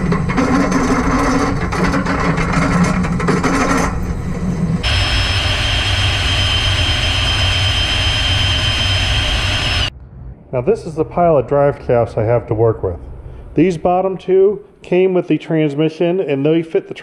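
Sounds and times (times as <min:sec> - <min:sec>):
drill bit grinding through steel: 0:00.0 - 0:09.9
drill press motor drone: 0:00.0 - 0:09.9
machine hum with high whine: 0:00.0 - 0:11.0.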